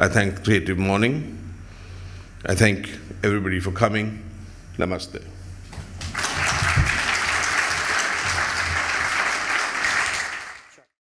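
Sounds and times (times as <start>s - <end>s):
audience applauding: 5.8s - 10.9s.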